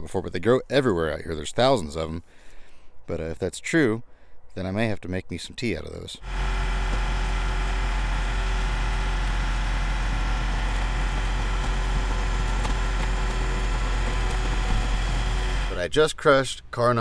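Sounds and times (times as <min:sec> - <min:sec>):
car crusher engine and hydraulics: 0:06.2 - 0:16.0
cars crumpling cracks: 0:10.0 - 0:15.8.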